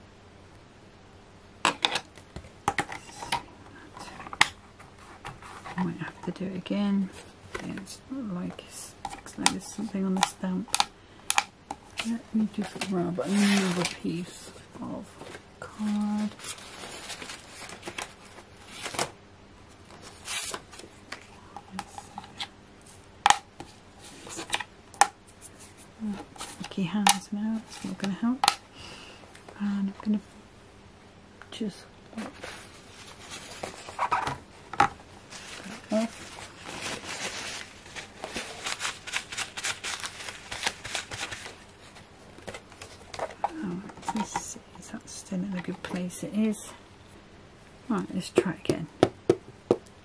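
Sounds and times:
card and paper rustling: 11.8 - 14.4, 15.0 - 19.1, 19.8 - 23.0, 32.2 - 34.6, 35.2 - 44.4.

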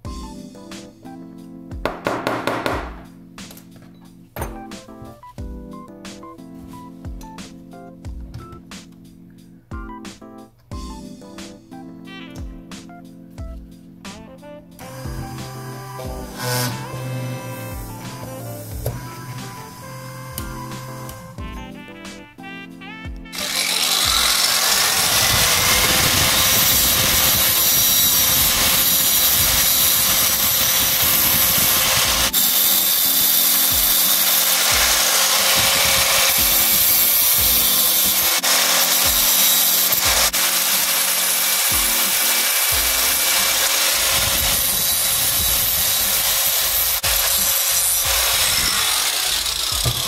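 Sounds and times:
power tool rasping cutting: 14.8 - 21.4, 23.3 - 50.0.

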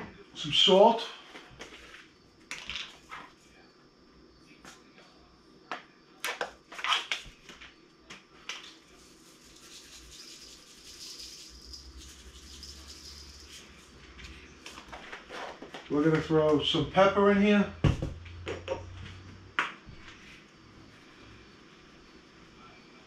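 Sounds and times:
salt grains falling: 8.6 - 13.9.

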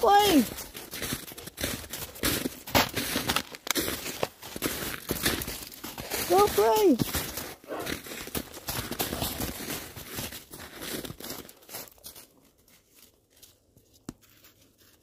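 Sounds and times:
footsteps crunching in snow: 0.0 - 15.0.

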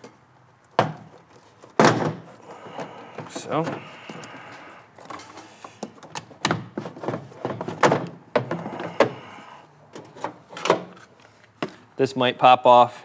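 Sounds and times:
hollow plastic knocks and clunks: 0.8 - 1.1, 5.8 - 9.2.

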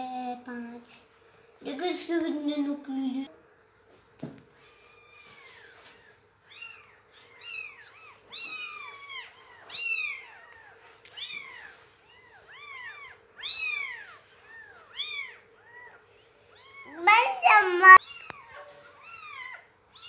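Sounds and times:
kittens mewing: 4.6 - 20.0.

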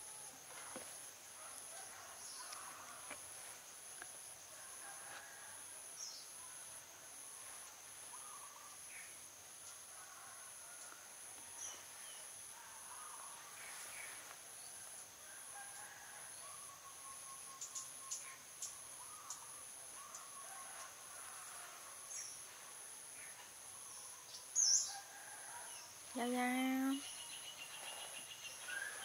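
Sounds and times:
insects pulsing drone: 0.0 - 29.0
bird chirps: 16.4 - 20.3.

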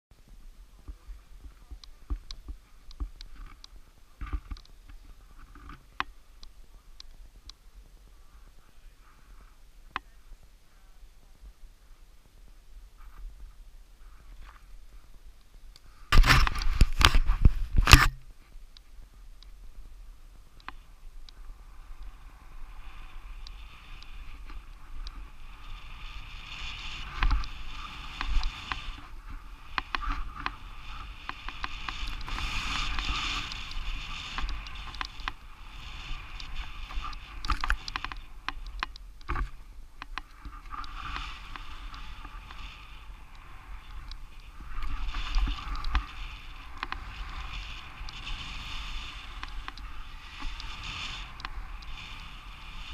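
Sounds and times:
skis hissing through snow: 20.8 - 38.4, 40.4 - 52.9
small clicks: 31.2 - 52.3.

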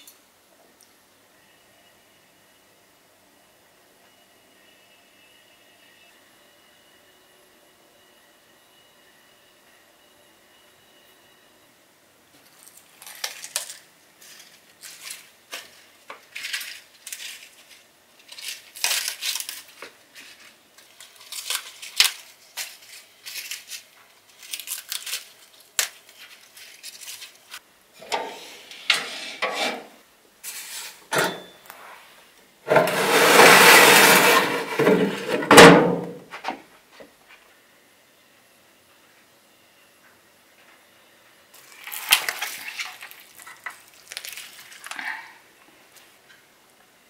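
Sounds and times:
lettuce leaves rustling and snapping: 12.6 - 27.6, 41.6 - 45.2
metal baking tray scraping: 28.0 - 32.0, 32.7 - 36.0.

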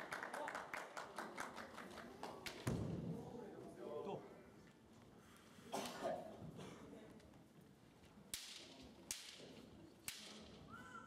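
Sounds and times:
bamboo swords cracking: 8.3 - 10.6.

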